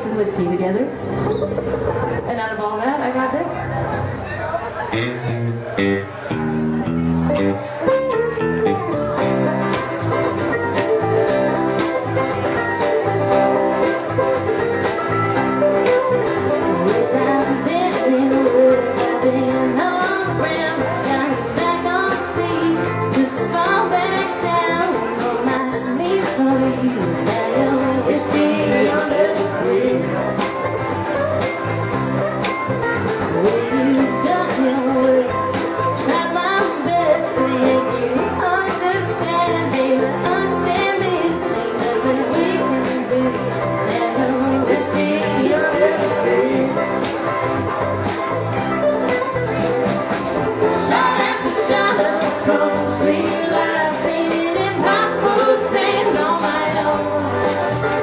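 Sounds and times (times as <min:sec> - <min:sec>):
live country band playing: 0:00.0 - 0:58.0
woman singing: 0:16.6 - 0:30.5, 0:33.2 - 0:47.1, 0:50.6 - 0:58.0.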